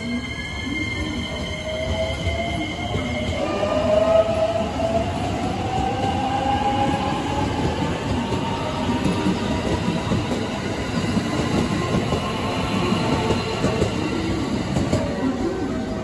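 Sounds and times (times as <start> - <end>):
train wheels clattering on rail: 5.6 - 15.2.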